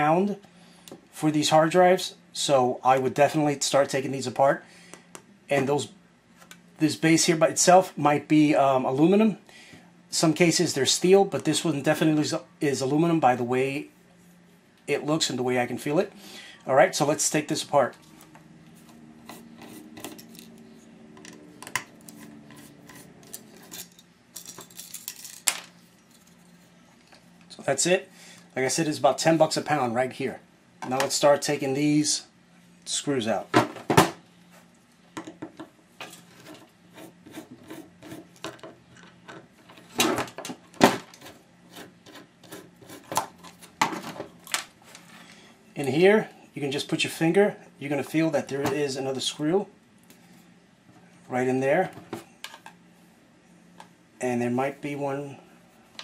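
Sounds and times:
screwdriver clicking and scraping: 19.3s - 20.6s.

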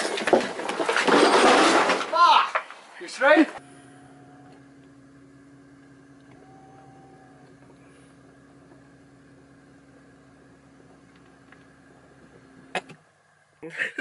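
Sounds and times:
low hum inside car: 3.2s - 14.0s
faint higher tone: 3.6s - 12.7s.

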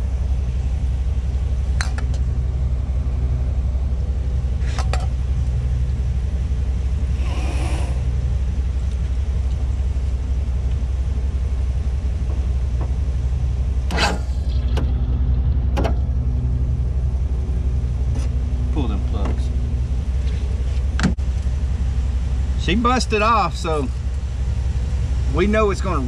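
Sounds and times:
lawn mower engine running: 0.0s - 26.0s
hiss: 7.1s - 8.1s.

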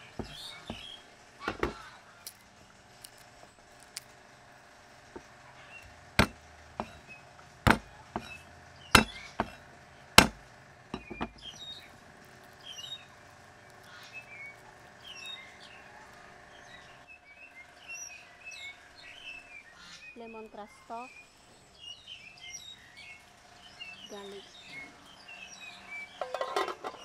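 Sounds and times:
small birds chirping: 0.0s - 4.2s, 5.1s - 10.3s, 10.9s - 27.0s
knocks on wooden chopping board: 0.2s - 0.9s, 1.5s - 1.8s, 6.2s - 7.0s, 7.7s - 8.4s, 9.0s - 9.6s, 11.0s - 11.4s.

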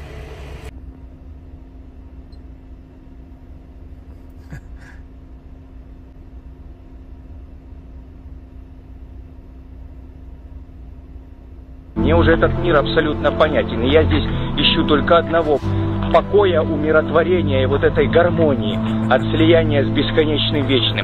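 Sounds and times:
faint steady hum: 0.0s - 21.0s
truck engine idling: 12.0s - 21.0s.

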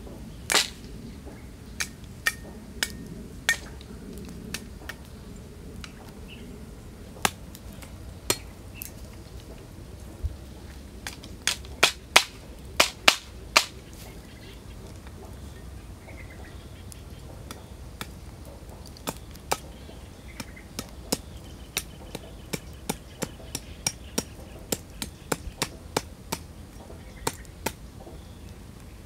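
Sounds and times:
cleaver chopping wood: 0.5s - 0.8s, 11.0s - 13.8s, 20.4s - 26.5s, 27.2s - 27.8s.

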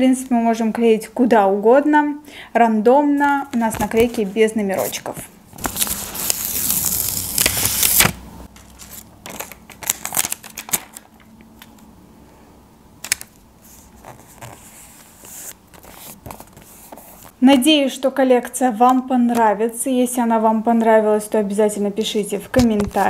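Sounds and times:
paper rustling and crinkling: 3.5s - 11.1s, 13.6s - 17.4s, 22.6s - 23.0s.

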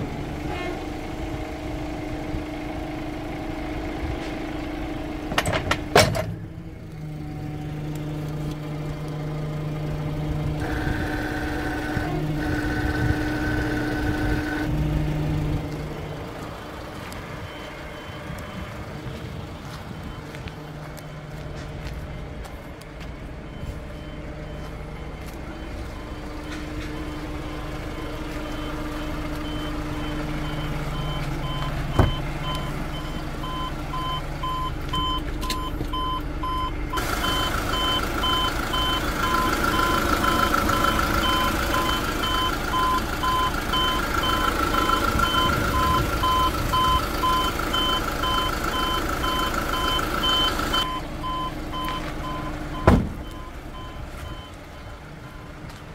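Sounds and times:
diesel engine idling: 0.0s - 55.9s.

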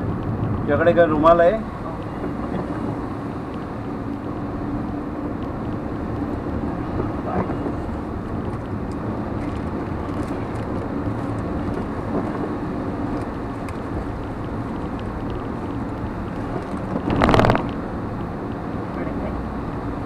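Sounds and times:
car road and engine noise: 0.0s - 20.0s.

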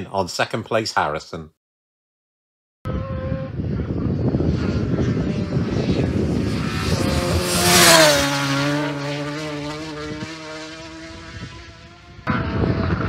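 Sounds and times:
motorcycle passing at speed: 2.9s - 13.0s.

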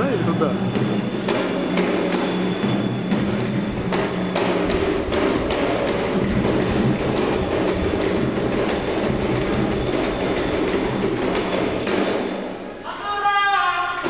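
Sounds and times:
hand drumming on barrel drum: 4.7s - 12.1s.

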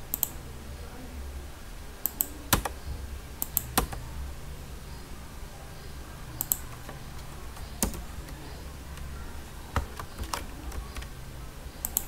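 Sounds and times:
low steady hum: 0.0s - 12.0s
keyboard keystrokes: 2.1s - 2.8s, 3.4s - 4.0s, 6.4s - 9.1s, 9.7s - 11.2s.

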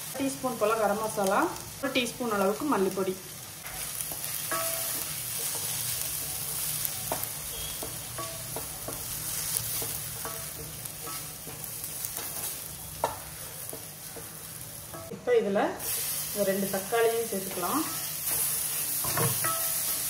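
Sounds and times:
food sizzling in hot oil: 0.0s - 20.0s.

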